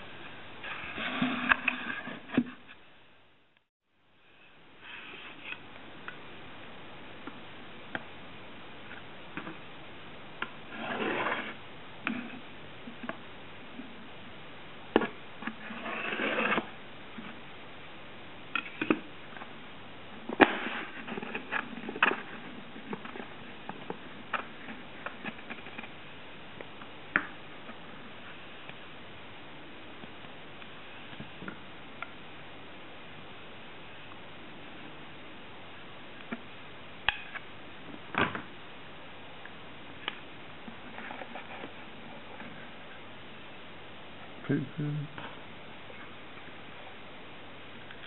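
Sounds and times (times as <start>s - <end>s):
cardboard scraping: 0.6s - 2.8s, 10.6s - 12.4s, 15.0s - 17.4s, 20.2s - 26.0s, 40.7s - 42.8s.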